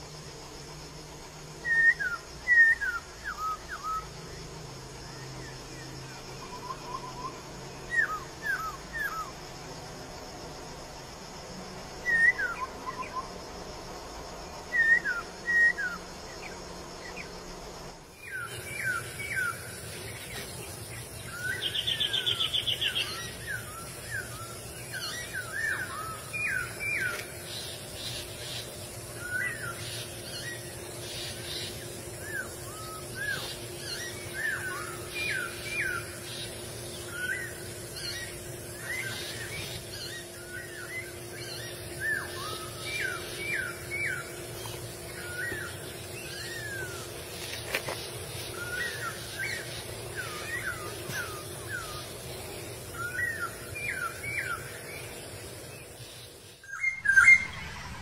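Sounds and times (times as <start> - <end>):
bird whistling: 1.6 - 4.0, 6.5 - 9.3, 12.1 - 13.3, 14.7 - 16.0, 21.3 - 27.3, 37.0 - 44.4, 52.9 - 54.8, 56.6 - 58.0.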